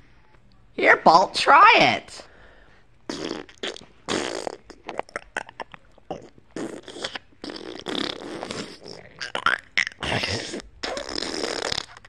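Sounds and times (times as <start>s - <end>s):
sauce sputtering from squeeze bottle: 6.6s - 9.0s, 10.4s - 12.0s.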